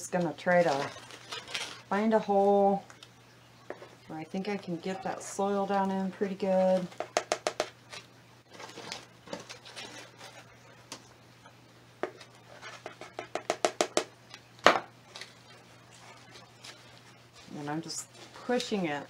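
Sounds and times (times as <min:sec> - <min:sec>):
plastic scoop scraping potting mix: 0:00.1 - 0:02.7, 0:04.4 - 0:07.0, 0:15.1 - 0:19.0.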